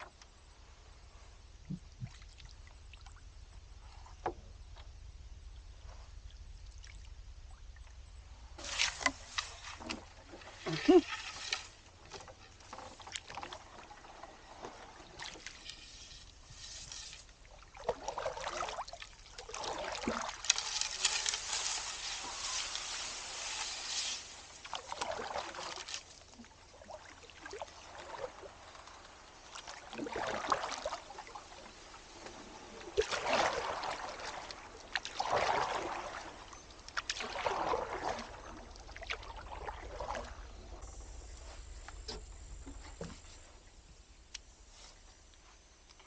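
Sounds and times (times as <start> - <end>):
reeds brushing along hull: 8.5 - 43.7
paddle strokes swishing in water: 8.6 - 45.2.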